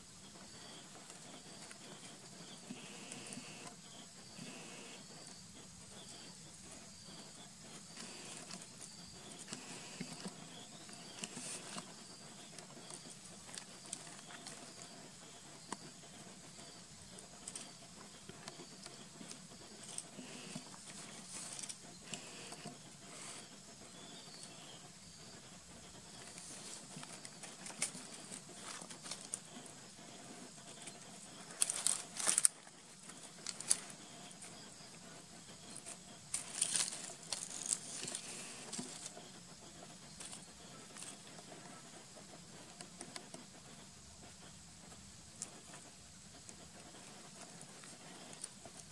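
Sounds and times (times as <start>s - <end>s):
rustling over dry leaves: 26.2s - 34.6s, 35.8s - 39.2s.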